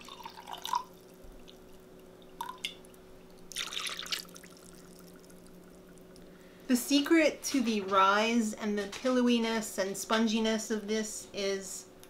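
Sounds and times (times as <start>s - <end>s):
water splashing into a bowl: 0.0s - 5.6s
water trickling into a jar: 0.0s - 6.3s
light water drips: 0.0s - 6.4s.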